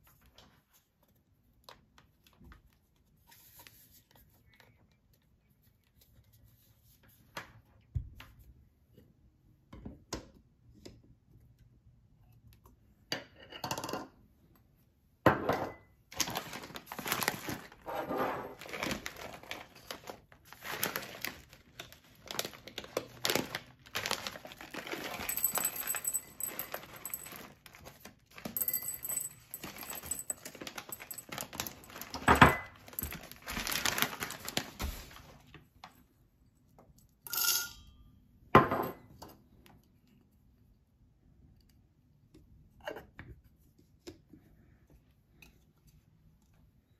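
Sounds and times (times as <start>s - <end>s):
foil bag crinkling: 16.1s - 17.9s, 18.5s - 28.6s, 29.5s - 35.5s
coffee beans rattling into metal bowl: 24.8s - 27.7s.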